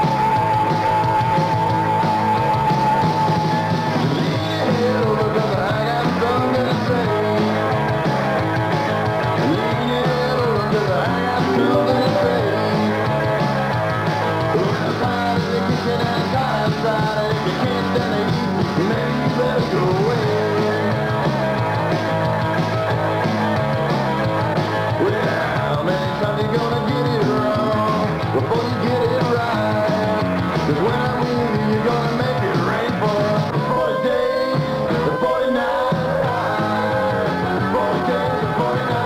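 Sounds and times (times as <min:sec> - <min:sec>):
rock band playing: 0:00.0 - 0:39.0
bending lead guitar line: 0:11.1 - 0:14.8.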